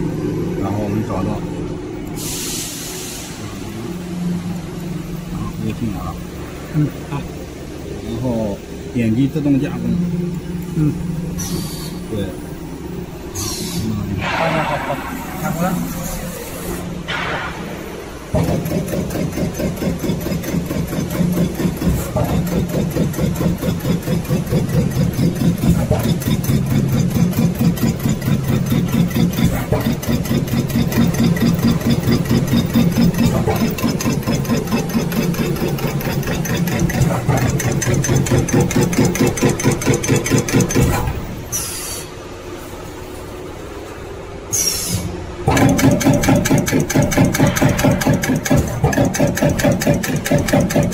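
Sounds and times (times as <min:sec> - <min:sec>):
punch press punching sheet metal: 0:18.4 - 0:41.3, 0:45.5 - 0:50.9.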